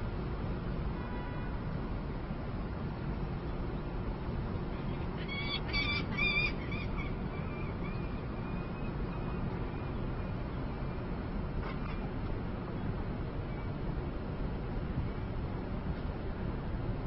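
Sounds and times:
low city rumble: 0.0s - 17.0s
falcon calling: 5.2s - 8.2s.

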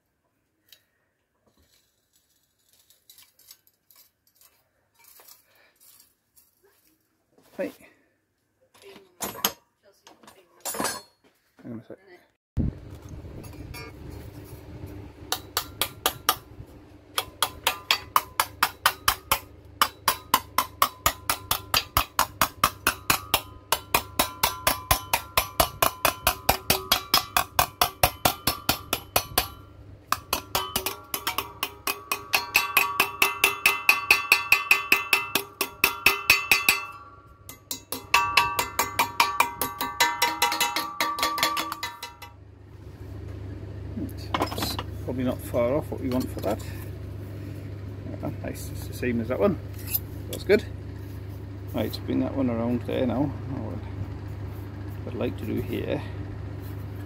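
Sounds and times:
hammer striking sheet metal: 15.3s - 16.5s, 17.2s - 42.4s.

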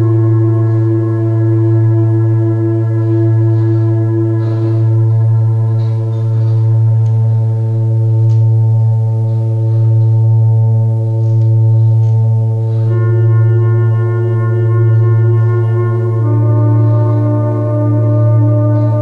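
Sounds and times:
deep low drone: 0.0s - 19.0s
synthesizer ambient pad: 0.0s - 19.0s.

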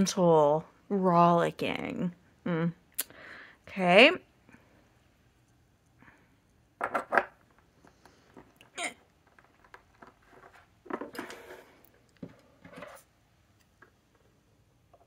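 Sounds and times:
rustling: 9.2s - 13.1s.

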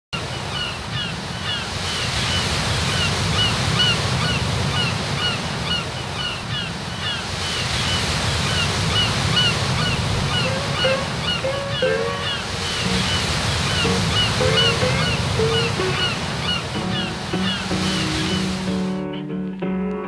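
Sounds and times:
birds chirping: 0.2s - 19.3s
ocean surf: 0.2s - 19.4s.

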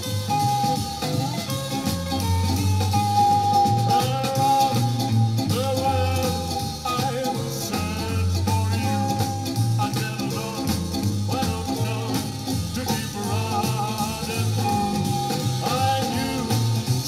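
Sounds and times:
pop-rock record playing: 0.0s - 17.0s.

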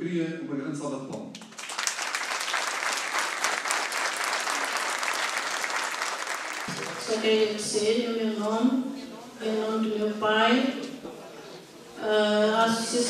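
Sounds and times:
audience applauding: 1.3s - 7.2s.

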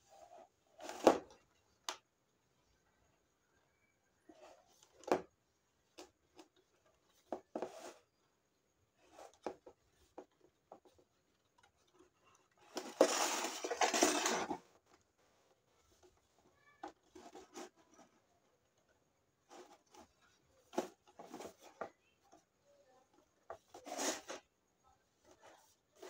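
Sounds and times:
rubbing scraping noise: 12.8s - 14.7s, 23.7s - 24.4s.

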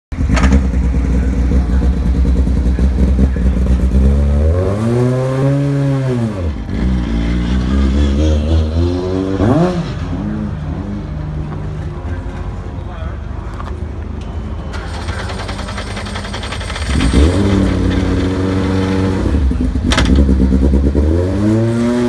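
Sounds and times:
race car engine idling: 0.1s - 4.5s, 10.2s - 20.7s.

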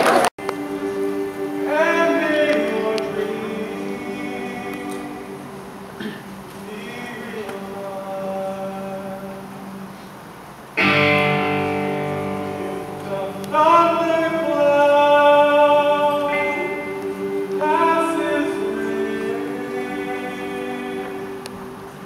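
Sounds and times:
choir singing in harmony: 0.4s - 10.0s, 10.8s - 22.0s
instrumental accompaniment: 10.8s - 22.0s.

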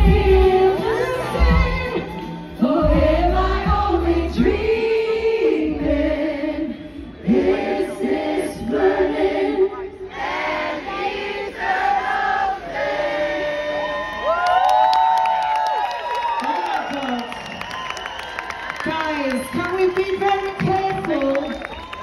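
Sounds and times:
pop ballad backing music: 0.0s - 7.7s
women singing into microphones: 0.0s - 10.7s.

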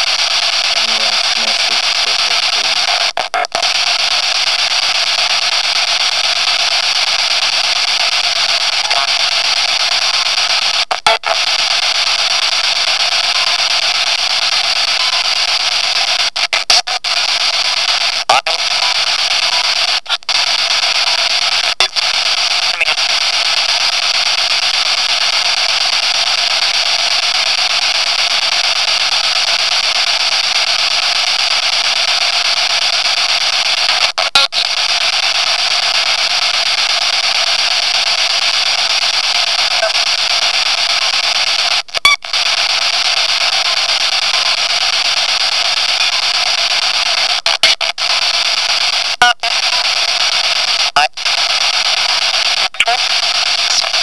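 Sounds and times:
loud static hiss: 0.0s - 54.0s.

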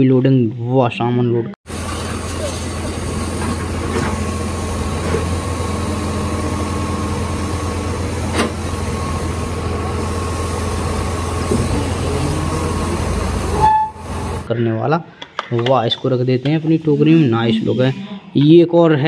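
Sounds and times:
engine-like drone: 1.7s - 14.5s.

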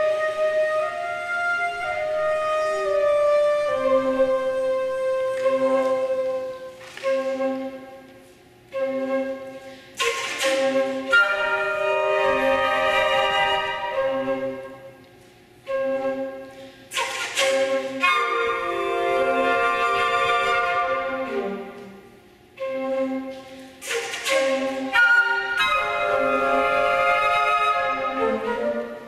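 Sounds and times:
flute choir playing: 0.0s - 29.0s.

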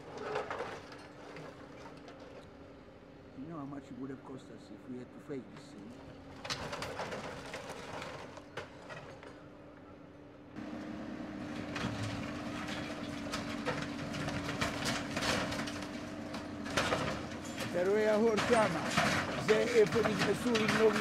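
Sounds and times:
backhoe loader engine running: 5.4s - 21.0s
boards and sheeting breaking: 6.4s - 9.2s, 11.8s - 21.0s.

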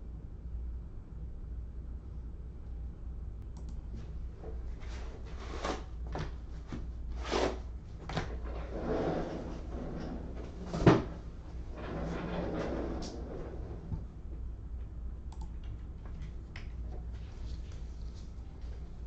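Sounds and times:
low hum: 6.4s - 19.0s.

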